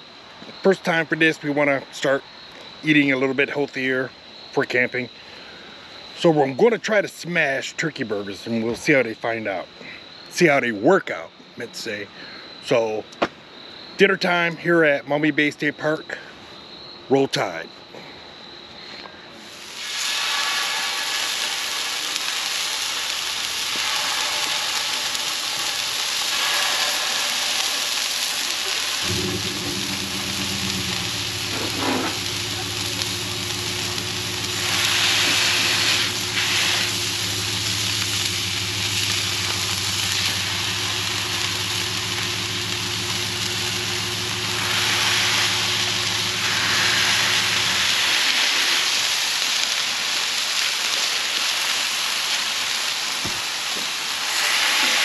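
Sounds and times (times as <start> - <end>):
patties sizzling on a griddle: 19.4 - 55.0
steady low hum: 29.0 - 48.0.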